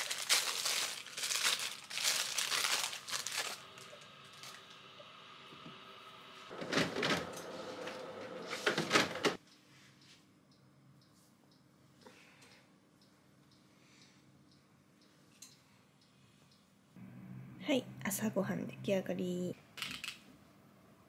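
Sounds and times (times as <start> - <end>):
paper wrapper crinkling: 0.0 - 4.7.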